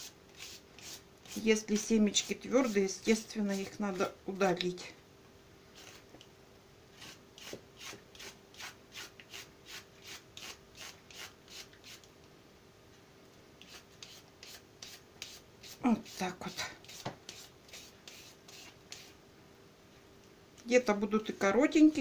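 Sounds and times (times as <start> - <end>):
peeler scraping a vegetable: 0.0 - 4.1, 5.8 - 6.1, 7.0 - 12.1, 13.6 - 19.1.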